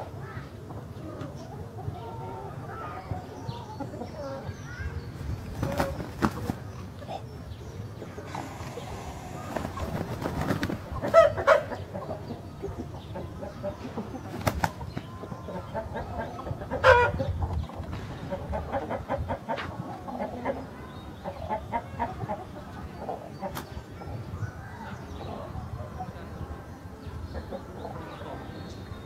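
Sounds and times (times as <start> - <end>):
wing flapping: 5.4 - 6.7, 8.3 - 11.4, 14.4 - 15.1
clucking calls: 5.4 - 23.8.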